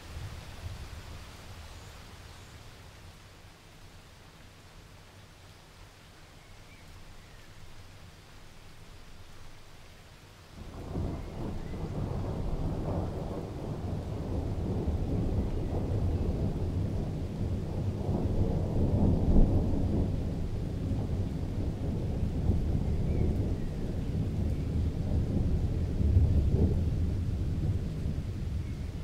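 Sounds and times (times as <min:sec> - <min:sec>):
thunder rumbling: 0:10.6 - 0:29.0.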